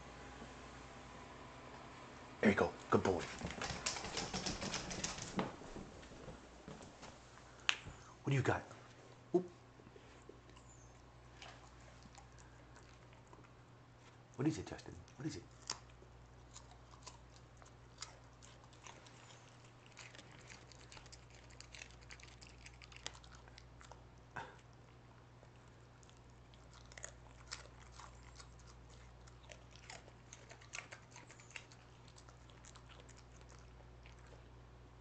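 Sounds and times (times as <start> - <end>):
steady low hum: 0.0 - 35.0
dog chewing with crunching clicks: 3.0 - 5.5, 14.7 - 24.1, 25.4 - 34.5.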